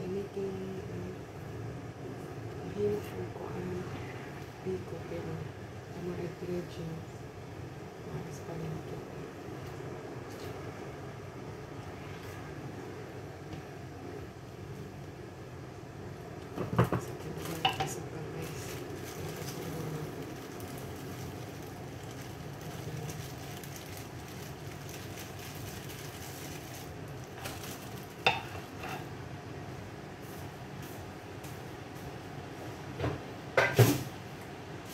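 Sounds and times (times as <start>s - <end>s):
spatula stirring in a pan: 28.3s - 29.1s.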